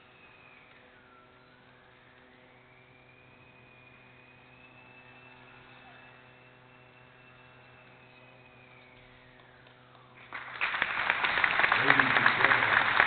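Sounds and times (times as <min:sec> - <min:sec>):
small plane motor whining: 0:00.0 - 0:13.0
steady hum: 0:00.0 - 0:13.0
loud applause: 0:10.2 - 0:13.0.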